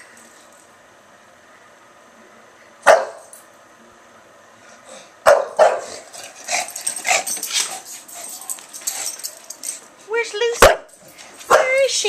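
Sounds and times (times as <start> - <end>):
dog barking: 2.8 - 3.3, 5.2 - 6.0, 11.5 - 11.9.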